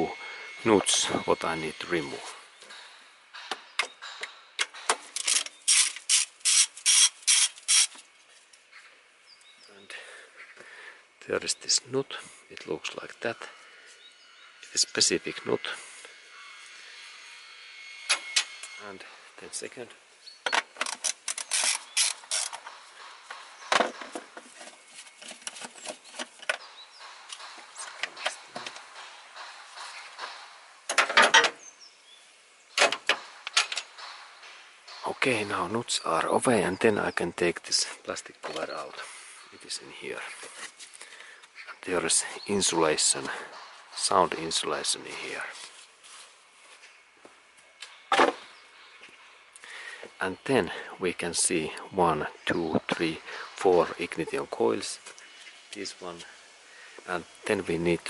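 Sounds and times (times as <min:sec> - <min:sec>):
socket ratchet clicking: 0:05.2 - 0:08.0.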